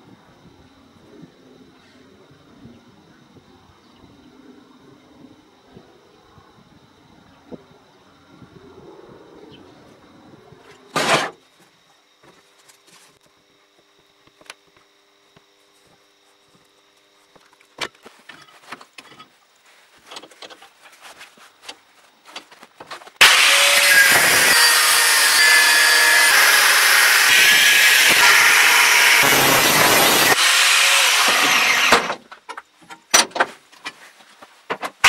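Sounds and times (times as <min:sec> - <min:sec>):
angle grinder cutting steel: 0:23.2 - 0:32.2.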